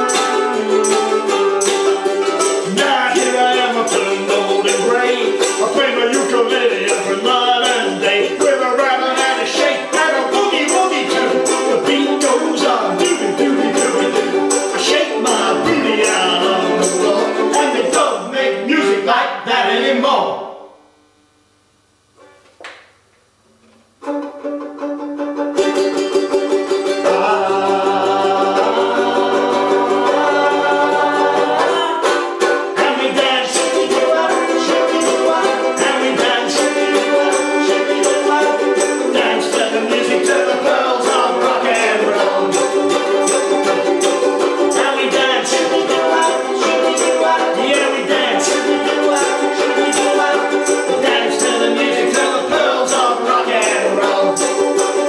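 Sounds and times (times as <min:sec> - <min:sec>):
tambourine shaking: 0:00.0 - 0:18.7, 0:32.8 - 0:55.0
acoustic folk band playing: 0:00.0 - 0:19.9, 0:24.0 - 0:55.0
voices singing together: 0:00.0 - 0:20.3, 0:26.7 - 0:55.0.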